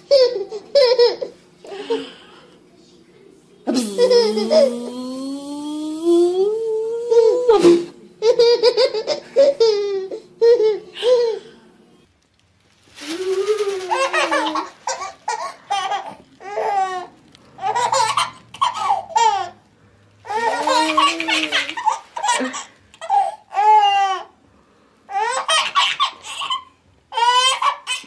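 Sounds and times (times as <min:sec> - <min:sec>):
babies laughing: 0:00.0 - 0:02.2, 0:03.8 - 0:05.0, 0:07.1 - 0:11.5, 0:13.2 - 0:19.6, 0:20.3 - 0:24.3, 0:25.1 - 0:28.0.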